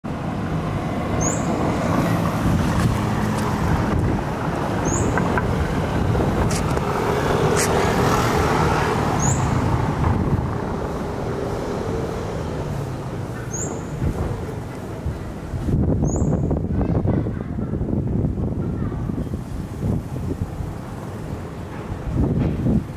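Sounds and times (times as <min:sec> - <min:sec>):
car and motorbike engines rumbling: 0:00.1 - 0:22.9
motorbike passing: 0:00.2 - 0:15.6.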